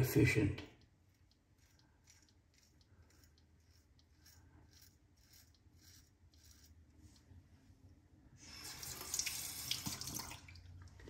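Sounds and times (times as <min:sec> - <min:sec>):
razor scratching beard stubble: 0:00.9 - 0:07.2.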